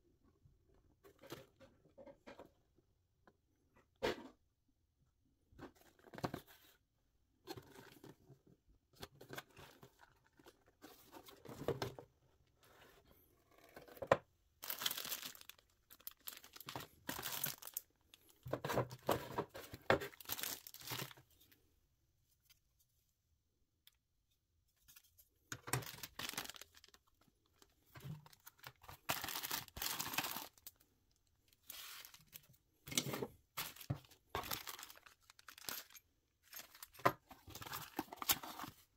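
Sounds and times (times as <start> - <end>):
plastic bags crinkling: 14.6 - 18.4, 20.1 - 21.2, 25.7 - 30.8, 33.6 - 38.8.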